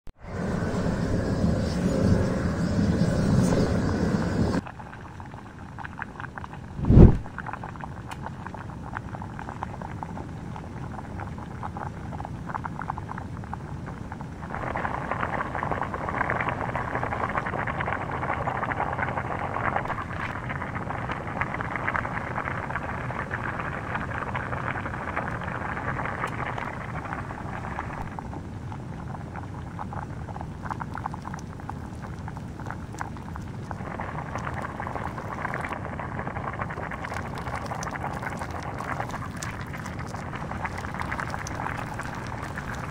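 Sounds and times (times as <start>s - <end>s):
plastic sizzling and crackling: 30.8s - 42.9s.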